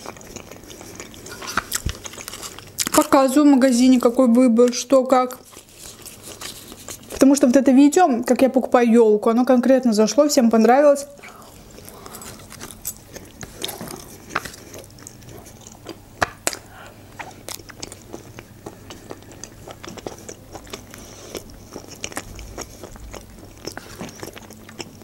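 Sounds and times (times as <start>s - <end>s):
chewing with wet mouth clicks: 0.0s - 3.1s, 11.2s - 25.0s
fork scooping from foil tray: 1.2s - 2.6s.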